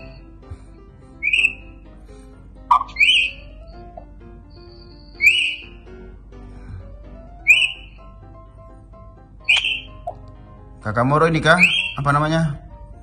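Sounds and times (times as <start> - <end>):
faint background music: 0.0 - 13.0
short rising whistled calls: 1.2 - 1.8, 2.8 - 3.8, 4.5 - 5.9, 7.4 - 8.1, 9.5 - 10.0, 11.6 - 12.1.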